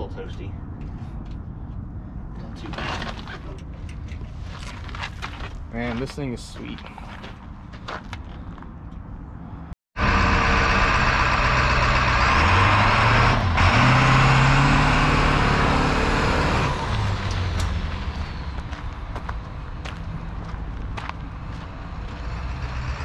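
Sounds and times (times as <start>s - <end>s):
bus engine revving: 10.0s - 19.0s, 21.4s - 23.0s.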